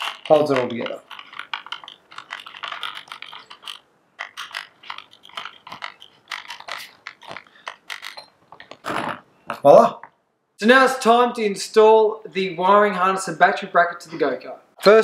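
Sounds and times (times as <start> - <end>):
screwdriver clicks and scrapes: 0.0 - 8.9.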